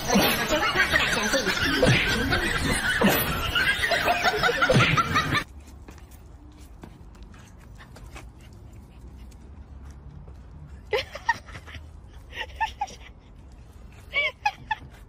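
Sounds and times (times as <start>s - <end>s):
snickering laughter: 0.0s - 5.5s, 10.8s - 15.0s.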